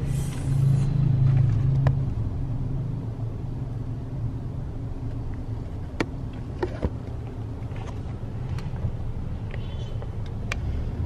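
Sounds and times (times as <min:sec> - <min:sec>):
car engine and road hum: 0:00.0 - 0:11.0.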